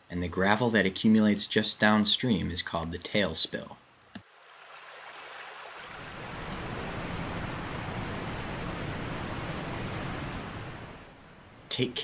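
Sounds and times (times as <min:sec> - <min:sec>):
creek water rushing: 0:04.2 - 0:11.2.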